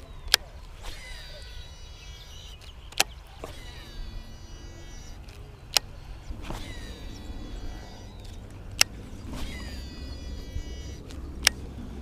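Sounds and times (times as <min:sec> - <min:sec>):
faint bird chirps: 0:00.0 - 0:12.0
fishing reel hum: 0:00.0 - 0:12.0
fishing reel click: 0:00.2 - 0:11.7.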